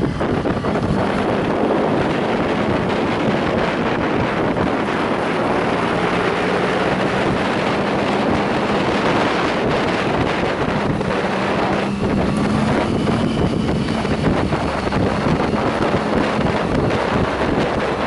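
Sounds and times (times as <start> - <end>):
motorcycle engine cruising: 0.0 - 18.0
wind rush on microphone: 0.0 - 18.0.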